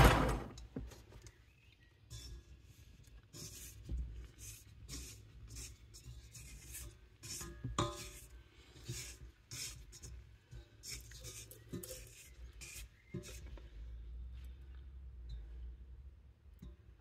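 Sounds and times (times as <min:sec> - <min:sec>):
spatula scraping mixer bowl: 0:02.1 - 0:13.6.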